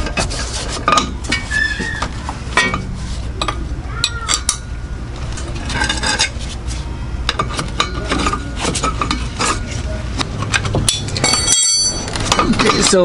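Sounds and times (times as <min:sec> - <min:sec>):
steady low hum: 0:00.0 - 0:13.0
wrenches clinking on metal bolts: 0:07.3 - 0:09.7, 0:10.3 - 0:13.0.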